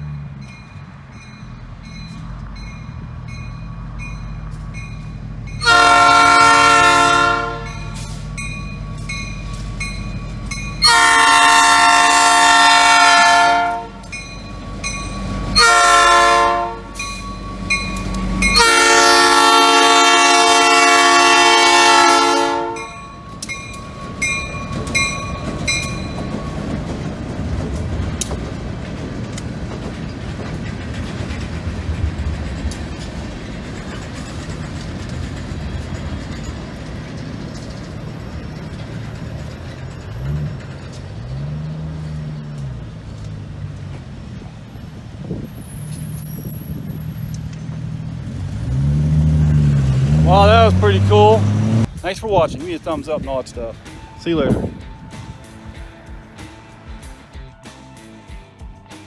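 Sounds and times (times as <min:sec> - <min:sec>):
crossing bell ringing: 0:00.0 - 0:28.2, 0:33.7 - 0:43.0, 0:52.3 - 0:59.0
locomotive engine rumble: 0:00.0 - 0:59.0
train cars rumbling and clicking: 0:00.0 - 0:59.0
diesel locomotive horn: 0:05.5 - 0:08.4, 0:10.4 - 0:14.2, 0:14.8 - 0:23.5, 0:48.6 - 0:51.9.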